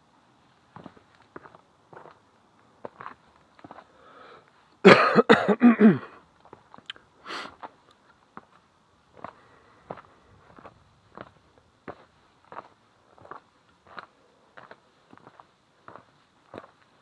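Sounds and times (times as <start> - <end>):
faint footsteps: 0.5 - 4.8, 7.5 - 17.0
person coughing: 4.8 - 6.2.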